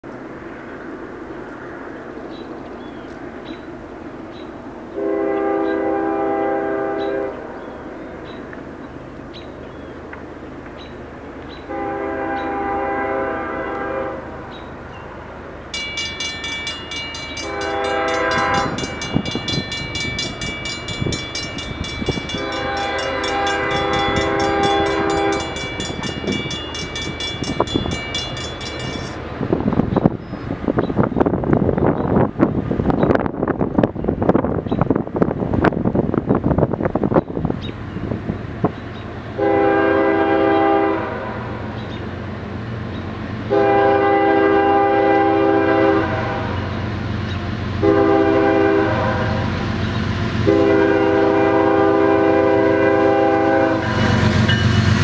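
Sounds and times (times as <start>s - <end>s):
freight train rumble and clatter: 0.0s - 55.0s
diesel locomotive horn blasts: 4.9s - 7.5s, 11.6s - 14.5s, 16.7s - 29.2s, 39.3s - 41.7s, 43.5s - 46.9s, 47.8s - 55.0s
crossing bell ringing: 15.6s - 29.9s, 53.0s - 55.0s.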